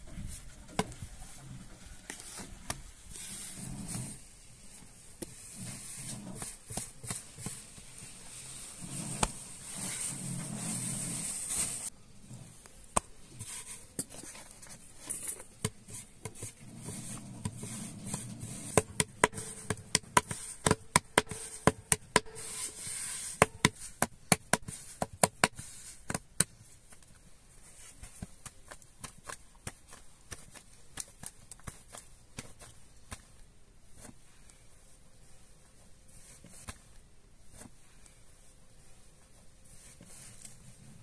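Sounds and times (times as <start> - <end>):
hands patting dough on board: 15.6 - 22.6, 23.3 - 27.1, 27.9 - 34.2.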